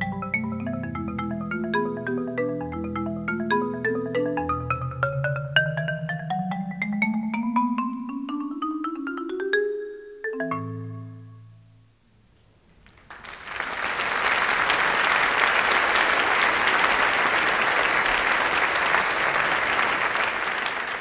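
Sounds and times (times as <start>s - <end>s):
marimba low notes: 0.0s - 11.9s
audience applause: 12.9s - 21.0s.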